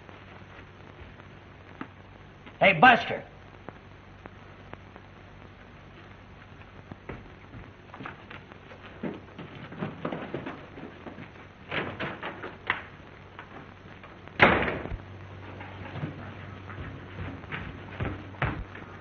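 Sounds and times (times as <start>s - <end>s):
low hum: 0.0s - 19.0s
door slamming shut: 14.4s - 15.0s
light knocks and shuffles: 15.4s - 19.0s.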